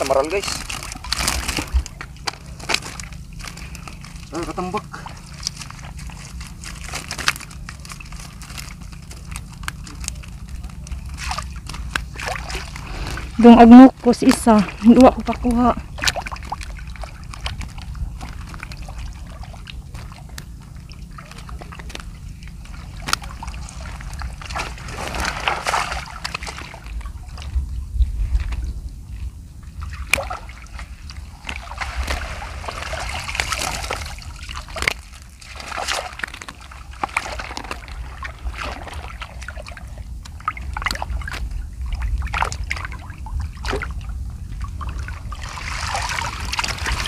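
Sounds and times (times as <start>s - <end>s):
low rumble: 0.0s - 47.0s
water sloshing and splashing: 0.0s - 47.0s
sharp splashes: 11.1s - 13.4s, 14.3s - 27.4s, 29.8s - 44.0s, 44.6s - 47.0s.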